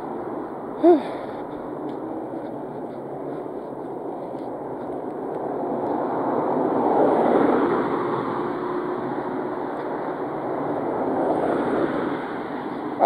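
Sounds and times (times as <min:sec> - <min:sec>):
vehicle approaching: 0:00.0 - 0:13.0
car passing by: 0:04.3 - 0:13.0.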